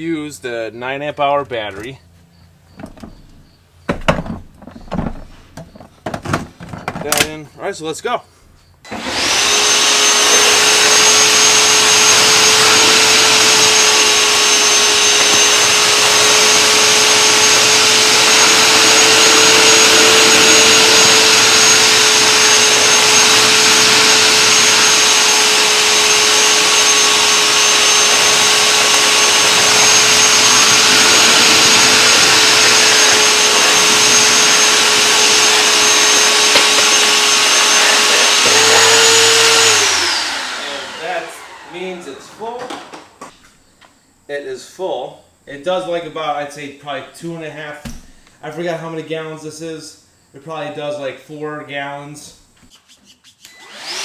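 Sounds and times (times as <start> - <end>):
wet vac sucking water: 9.1 - 40.6.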